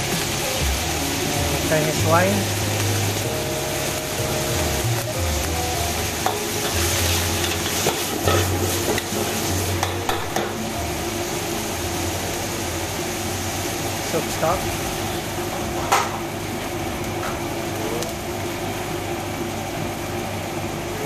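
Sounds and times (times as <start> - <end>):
rice sizzling in a wok: 0.0 - 20.9
metal ladle scraping wok: 6.6 - 9.9.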